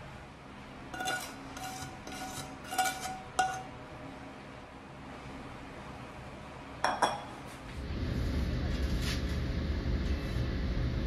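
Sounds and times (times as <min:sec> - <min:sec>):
metal spoon scraping a pan: 0:00.9 - 0:03.7.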